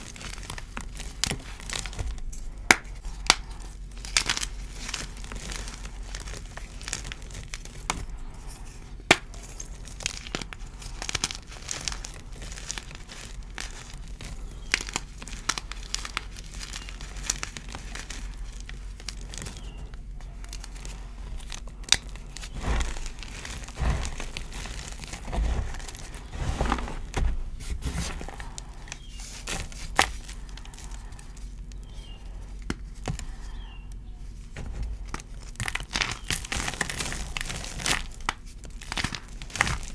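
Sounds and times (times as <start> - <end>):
chalk crunching and cracking: 0.0 - 39.9
heavy thuds: 22.3 - 28.6.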